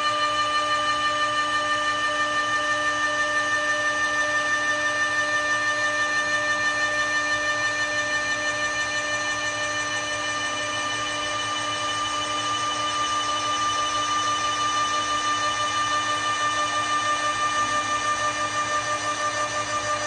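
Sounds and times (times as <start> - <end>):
cnc lathe whining: 0.0 - 20.0.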